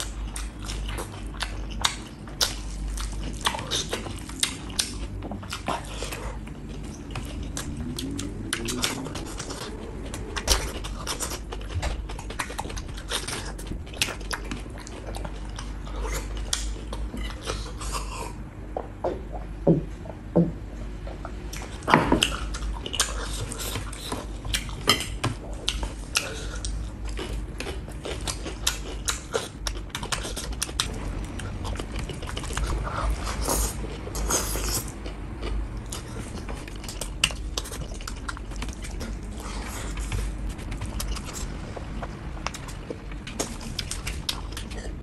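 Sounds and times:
chewing and smacking: 0:00.0 - 0:19.5, 0:21.1 - 0:45.0
person swallowing drink: 0:18.8 - 0:20.6.

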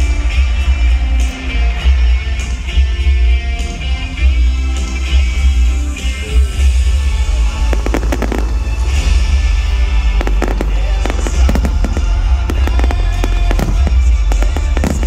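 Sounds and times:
loud music with heavy bass: 0:00.0 - 0:15.0
firework shells bursting: 0:07.8 - 0:09.0, 0:10.0 - 0:15.0.

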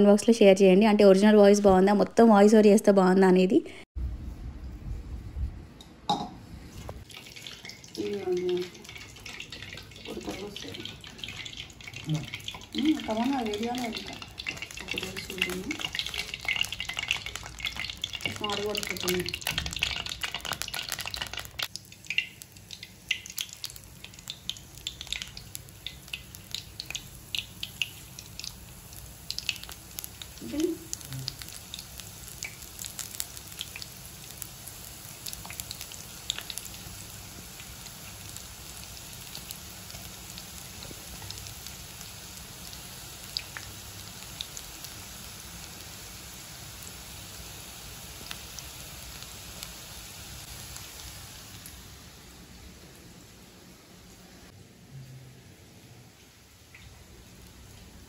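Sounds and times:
oil crackling and popping: 0:06.8 - 0:51.8
batter frying in hot oil: 0:06.8 - 0:54.6, 0:56.1 - 0:58.0.

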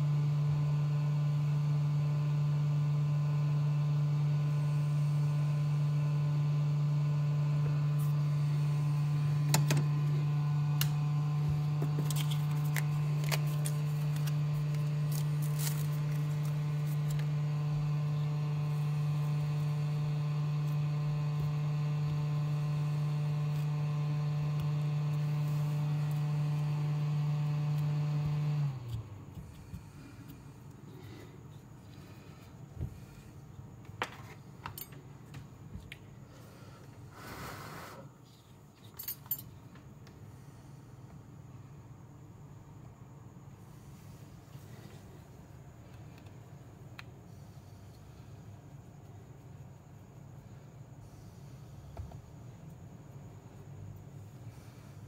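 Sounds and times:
electrical hum: 0:00.0 - 0:55.0.

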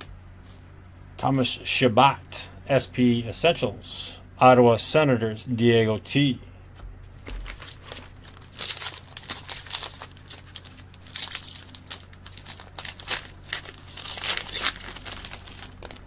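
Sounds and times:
cards rustling: 0:07.1 - 0:16.0
foil wrapper crinkling: 0:07.2 - 0:16.0.

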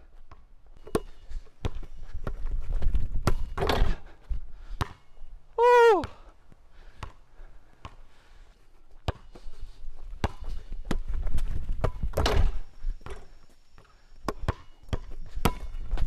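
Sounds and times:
basketball bouncing on asphalt: 0:00.2 - 0:04.0, 0:04.7 - 0:05.1, 0:07.0 - 0:08.1, 0:09.0 - 0:16.0.

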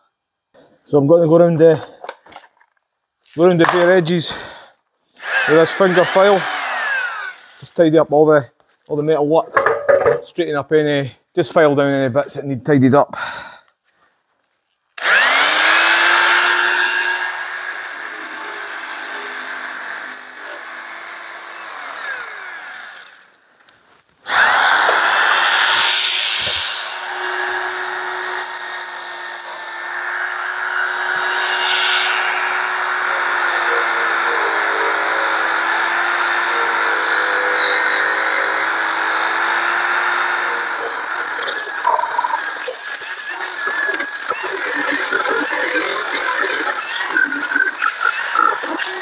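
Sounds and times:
belt sander filing metal: 0:05.2 - 0:07.8, 0:24.3 - 0:49.0.

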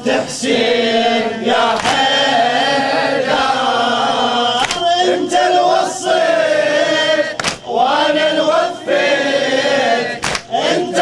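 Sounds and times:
congregation singing in chorus: 0:00.0 - 0:11.0.

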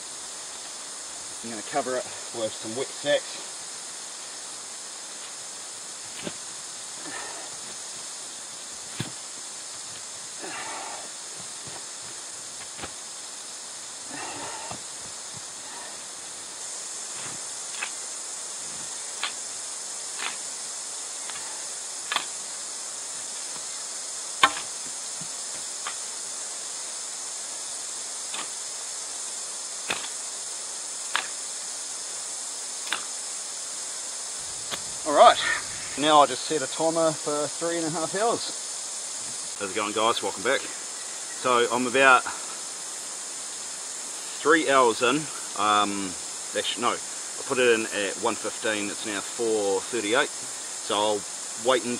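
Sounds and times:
steam hissing: 0:00.0 - 0:51.9
sharp pops and cracks: 0:17.2 - 0:18.0, 0:19.2 - 0:19.4, 0:20.1 - 0:20.4, 0:21.2 - 0:22.4, 0:24.4 - 0:26.0, 0:28.3 - 0:28.6, 0:29.8 - 0:30.2, 0:31.1 - 0:31.4, 0:32.8 - 0:33.1.

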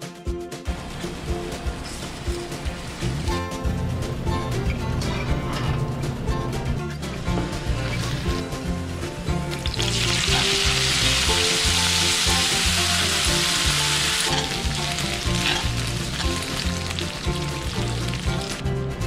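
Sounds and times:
background music: 0:00.0 - 0:19.0
pasta sizzling in hot oil: 0:09.6 - 0:18.6.

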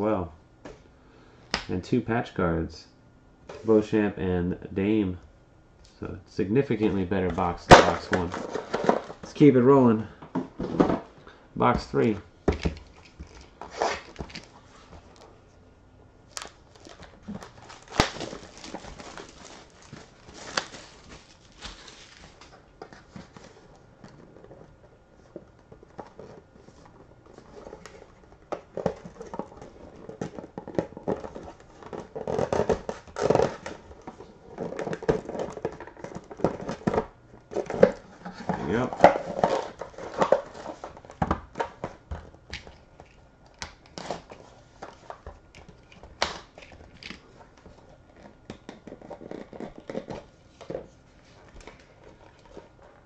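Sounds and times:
cardboard rustling and scraping: 0:06.8 - 0:09.6, 0:12.8 - 0:15.4, 0:16.3 - 0:42.4
plastic wrap crinkling and tearing: 0:16.3 - 0:22.6.

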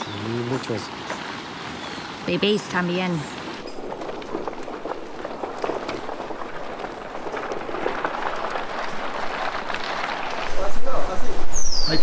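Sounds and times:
hooves on gravel: 0:03.2 - 0:12.0
poles dragging over gravel: 0:03.2 - 0:12.0.

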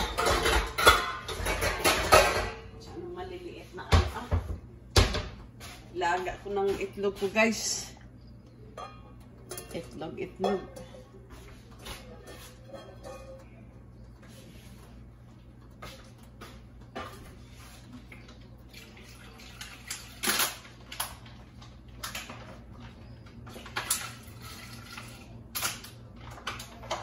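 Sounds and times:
kitchen clicks and knocks: 0:00.0 - 0:02.8, 0:03.9 - 0:05.5, 0:08.6 - 0:13.6.

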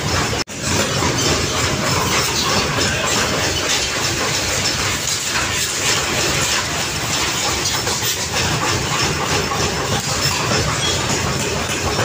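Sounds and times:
workshop machinery clattering: 0:00.0 - 0:12.0.

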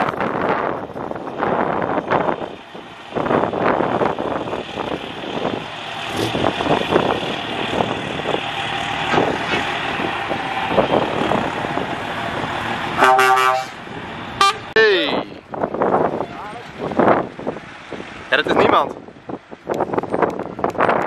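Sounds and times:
truck diesel engines: 0:00.0 - 0:21.0
truck horn blast: 0:13.0 - 0:13.8, 0:14.4 - 0:14.7.

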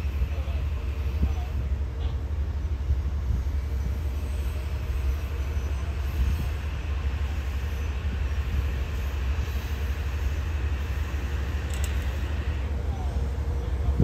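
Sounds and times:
electric train rumbling slowly: 0:00.0 - 0:14.0.

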